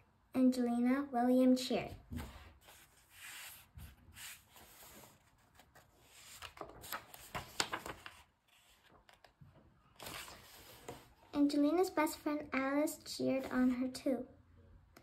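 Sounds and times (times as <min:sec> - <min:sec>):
paper page rustling: 0:02.2 - 0:09.4, 0:10.0 - 0:11.1.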